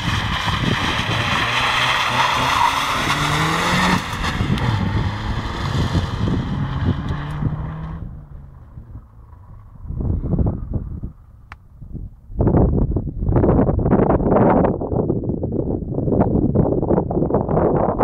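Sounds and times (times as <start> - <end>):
car engine revving: 0.0 - 10.0.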